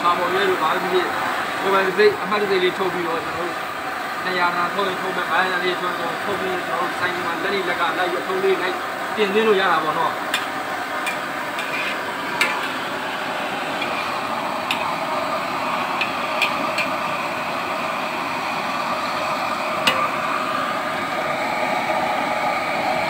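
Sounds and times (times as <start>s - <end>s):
potatoes sizzling in hot oil: 4.2s - 21.4s.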